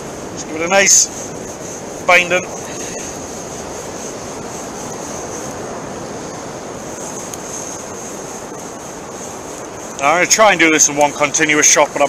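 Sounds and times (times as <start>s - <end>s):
sea surf on beach: 0.0s - 12.0s
thin high whine: 0.0s - 12.0s
wind on microphone: 0.0s - 12.0s.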